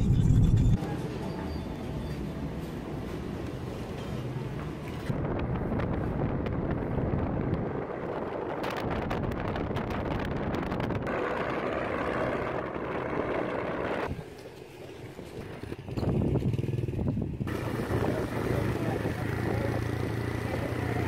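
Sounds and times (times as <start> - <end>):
wind buffeting microphone: 5.1 - 14.2, 15.1 - 19.8
vehicle engine running: 15.4 - 21.0.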